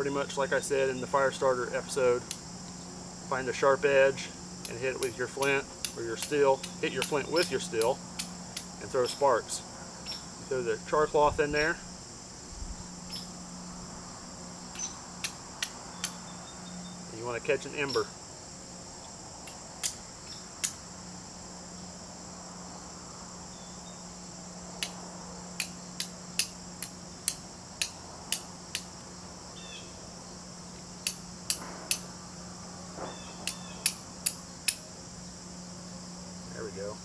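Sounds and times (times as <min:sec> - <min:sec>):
insects trilling: 0:00.0 - 0:37.0
flint and steel strikes: 0:04.6 - 0:08.8, 0:14.7 - 0:16.2, 0:19.4 - 0:20.8, 0:25.6 - 0:28.9, 0:31.0 - 0:32.1, 0:33.0 - 0:34.9.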